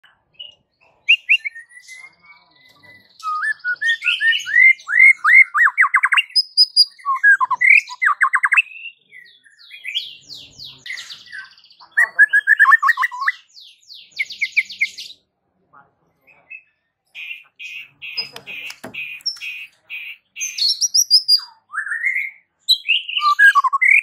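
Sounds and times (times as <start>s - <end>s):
bird singing: 0.0s - 15.2s, 16.2s - 24.0s.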